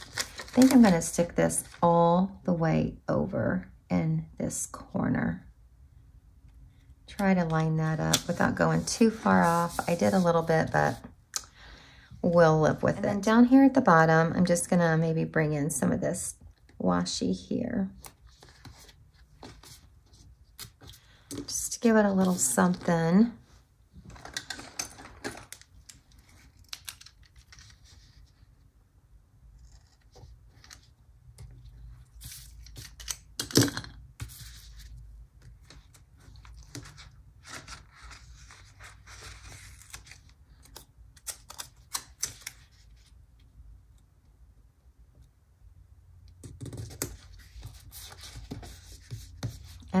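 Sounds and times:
soft paper rustling: 0.0 - 1.8, 7.4 - 11.2, 18.0 - 24.3, 25.4 - 28.8, 34.2 - 43.5.

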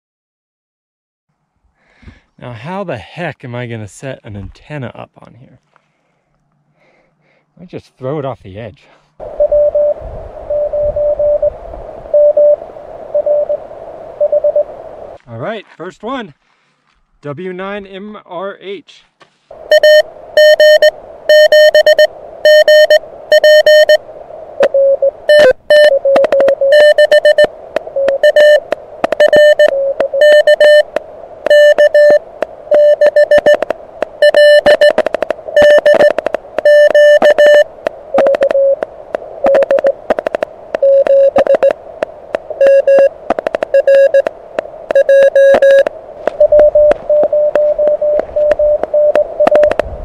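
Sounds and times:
morse code tones: 9.2 - 13.6, 14.2 - 14.7, 19.6 - 24.0, 24.6 - 41.8, 42.4 - 44.3, 44.9 - 49.8.

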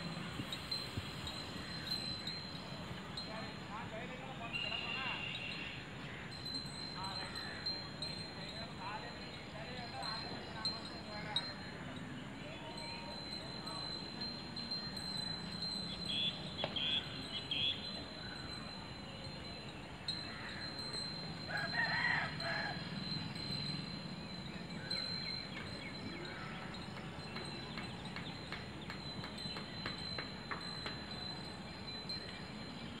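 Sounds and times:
rooster crowing: 21.5 - 23.0.

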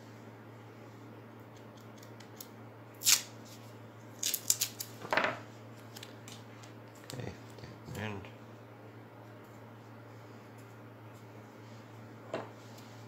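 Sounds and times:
tape ripping: 3.0 - 3.3, 4.2 - 5.0.

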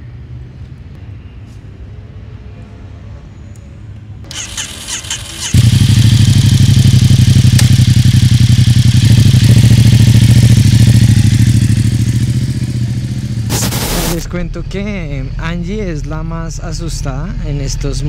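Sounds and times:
motorcycle engine revving: 4.3 - 14.3.

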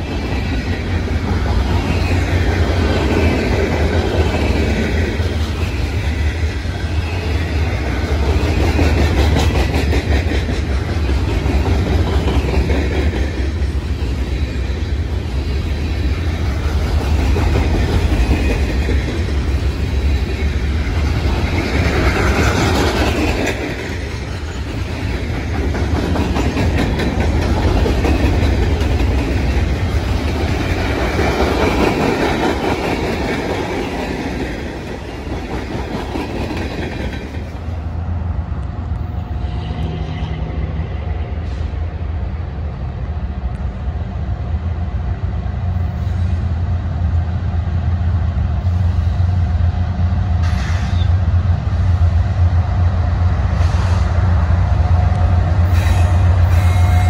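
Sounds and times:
train wheels clattering on rails: 0.0 - 37.9.

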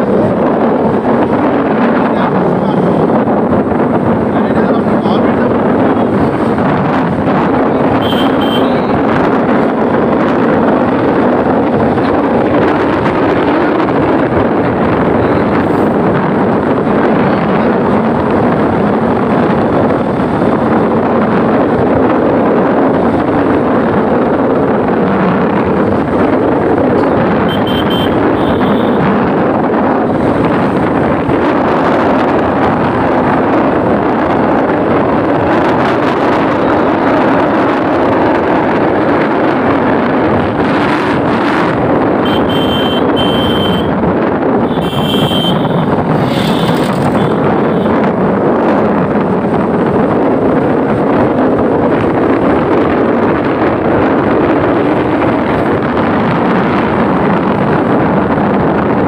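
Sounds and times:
wind rush on microphone: 0.0 - 59.0
motorbike engine running: 25.2 - 38.0.

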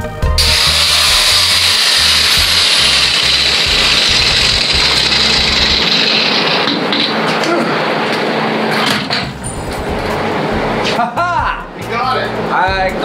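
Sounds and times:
angle grinder cutting steel: 0.4 - 7.2.

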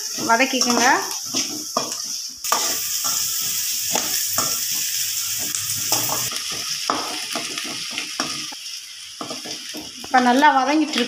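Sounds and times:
spatula scraping a pan: 0.0 - 8.6
onions sizzling in hot oil: 0.0 - 11.0.

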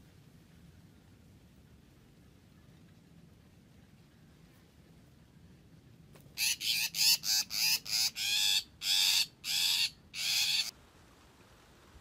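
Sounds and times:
bird giving harsh grating calls: 6.4 - 10.7.

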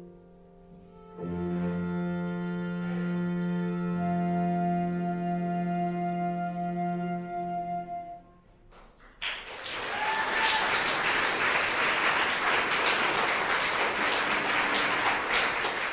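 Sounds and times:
audience applause: 9.1 - 15.9.

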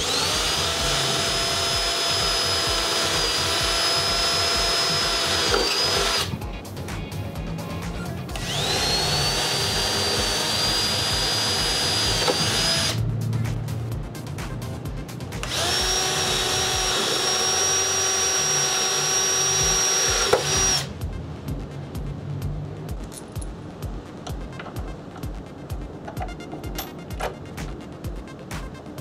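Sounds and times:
cordless drill whining: 0.0 - 6.4, 8.3 - 13.0, 15.4 - 20.9.

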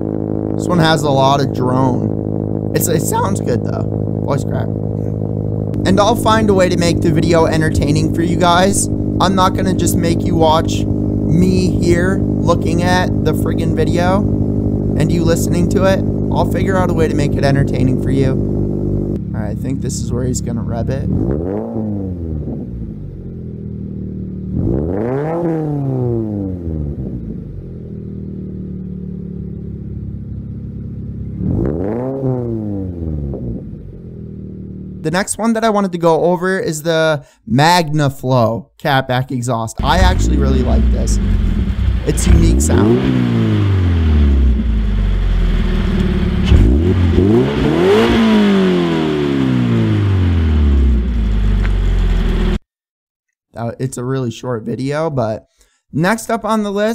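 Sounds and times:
car engine idling: 0.0 - 21.0, 27.4 - 31.4, 39.8 - 52.6
engine revving: 0.0 - 35.2, 39.8 - 52.6.

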